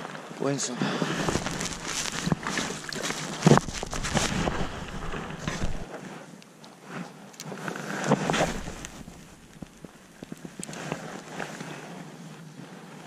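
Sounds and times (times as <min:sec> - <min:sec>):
wind rumbling on microphone: 0:00.9 - 0:06.0, 0:07.5 - 0:13.0
rustling: 0:00.9 - 0:06.2, 0:06.9 - 0:11.8.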